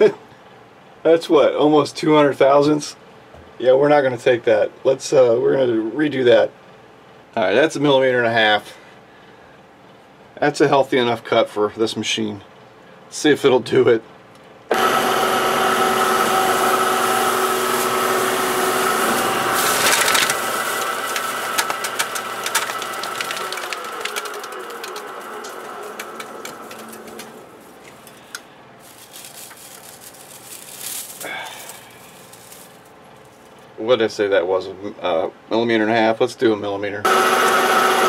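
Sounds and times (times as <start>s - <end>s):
lathe motor and gear whine: 14.7s - 27.9s, 37.1s - 38.0s
chips pulled off by hand: 18.9s - 33.5s
metal chips rattling: 19.6s - 33.5s.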